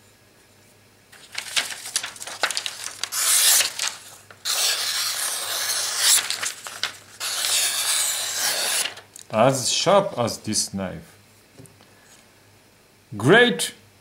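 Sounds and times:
paper rustling: 1.1s - 9.1s
knife slicing paper: 1.2s - 9.1s.

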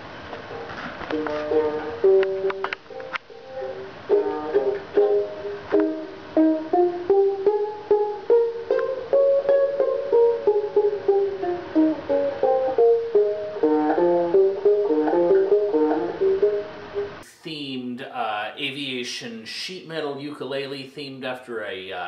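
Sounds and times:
resonator ukulele fingerpicked: 0.2s - 17.2s.

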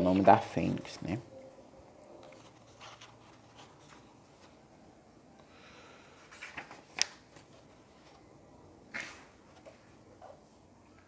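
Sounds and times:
book pages rustling: 2.2s - 4.6s, 6.2s - 11.0s.

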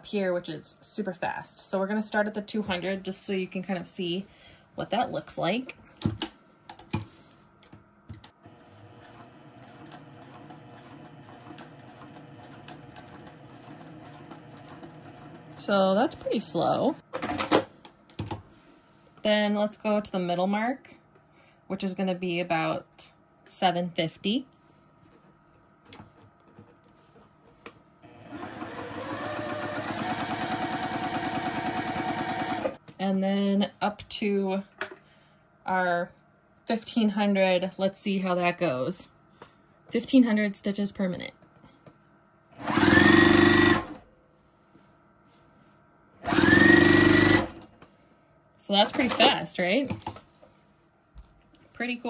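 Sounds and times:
sewing machine sewing: 8.4s - 15.7s, 28.1s - 32.8s, 42.6s - 44.0s, 46.2s - 47.7s.

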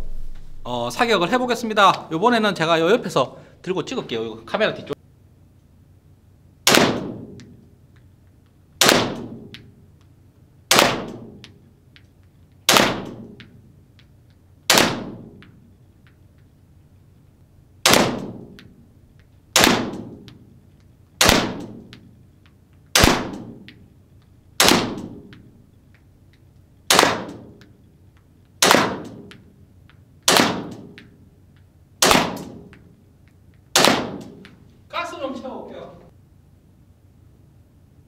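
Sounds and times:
airsoft pistol shots: 6.6s - 7.4s, 8.8s - 9.6s, 10.7s - 11.5s, 12.7s - 13.6s, 14.7s - 15.5s, 17.8s - 18.6s, 19.5s - 20.4s, 21.2s - 22.0s, 22.9s - 23.7s, 24.6s - 25.4s, 26.9s - 27.6s, 28.6s - 29.4s, 30.2s - 31.2s, 32.0s - 32.8s, 33.7s - 34.4s
pellets striking cardboard target: 12.7s - 16.2s, 17.8s - 18.7s, 19.5s - 20.5s, 26.9s - 27.8s, 28.6s - 31.2s, 32.0s - 32.9s, 33.6s - 34.6s.

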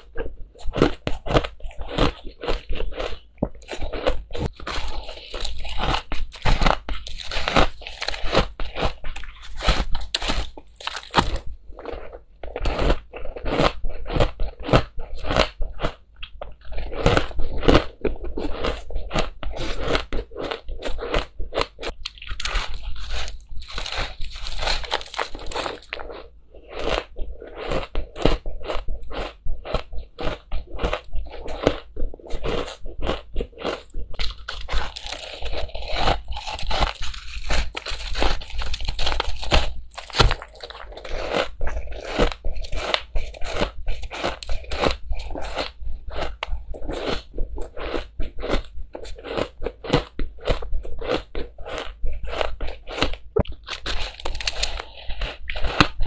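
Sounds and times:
crushed ice crunching: 0.8s - 11.5s, 22.2s - 29.3s, 32.4s - 46.3s, 49.2s - 56.0s.

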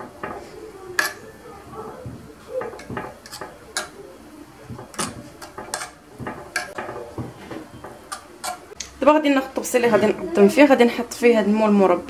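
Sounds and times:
metal spoon scraping ceramic dish: 2.7s - 4.0s, 4.9s - 6.8s.

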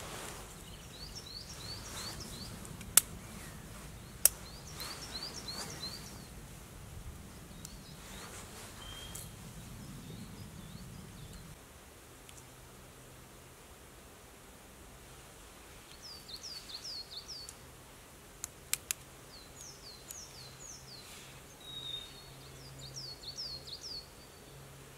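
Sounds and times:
small bird chirping: 0.5s - 6.4s, 7.5s - 11.6s.

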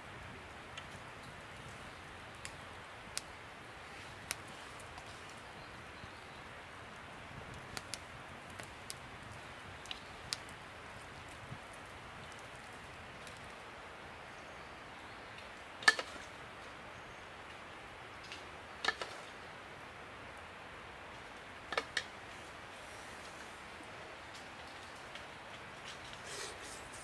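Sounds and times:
faint steady hiss: 0.0s - 27.0s.

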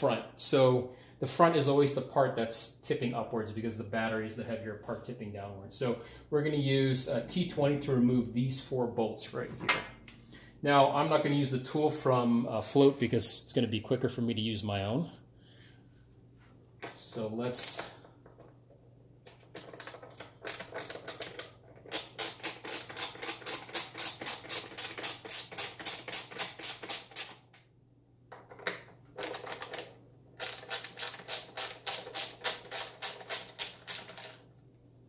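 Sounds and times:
ratcheting screwdriver clicking: 19.9s - 27.4s, 29.2s - 34.4s.

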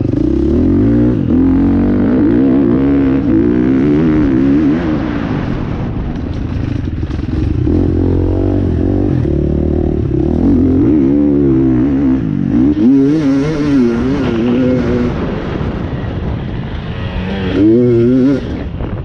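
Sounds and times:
dirt bike engine revving: 0.0s - 18.9s
bike rattling over bumps: 6.0s - 10.8s.

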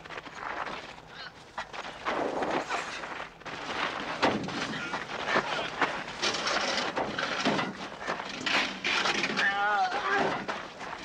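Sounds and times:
scuffling on gravel: 0.0s - 6.8s.

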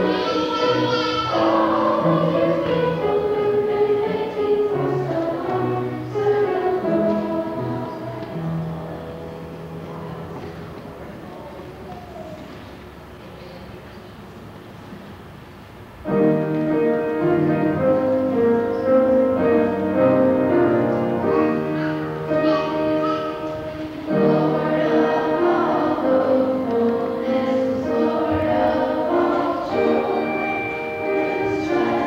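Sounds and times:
children singing in chorus: 0.0s - 8.4s, 21.0s - 32.0s
piano accompaniment: 0.0s - 13.3s, 14.0s - 32.0s.

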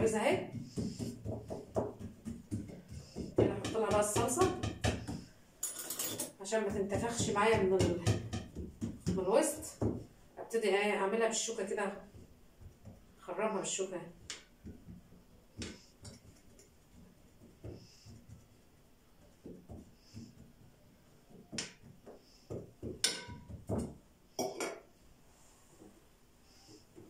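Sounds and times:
fork tapping metal pan: 22.9s - 23.6s.

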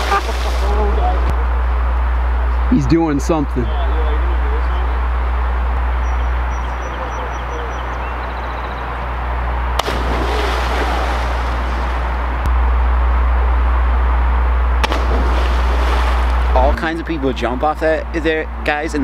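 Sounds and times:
water splash spray: 0.0s - 0.9s, 9.8s - 12.3s, 14.8s - 16.5s
low rumble: 0.0s - 17.0s.

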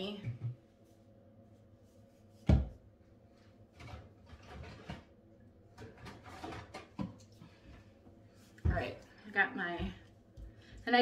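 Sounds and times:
cans and bottles clattering: 5.8s - 7.2s.

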